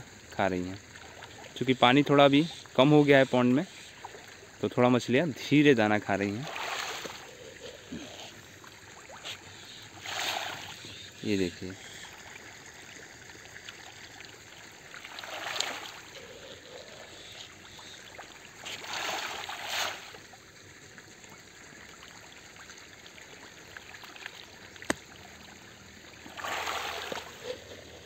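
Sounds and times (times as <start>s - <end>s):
trickle of running water: 0.0s - 28.0s
fish splashing at water surface: 6.4s - 11.1s, 11.8s - 20.3s, 23.3s - 28.0s.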